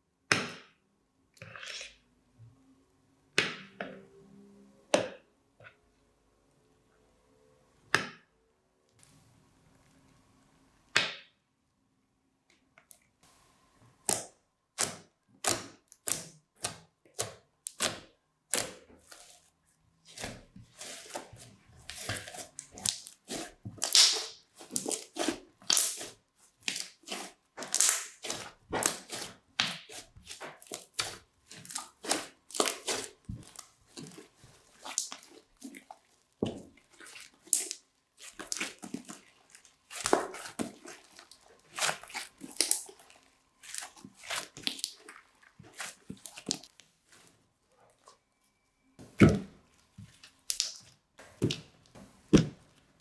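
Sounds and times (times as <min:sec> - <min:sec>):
crunchy slime popping and crackling: 0:21.9 - 0:46.9.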